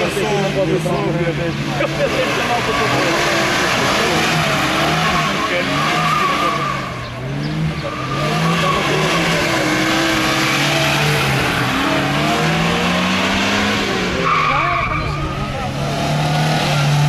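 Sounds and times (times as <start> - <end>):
car engine revving: 0.0 - 17.0
tyre squeal and skidding: 2.2 - 12.8, 13.7 - 15.8.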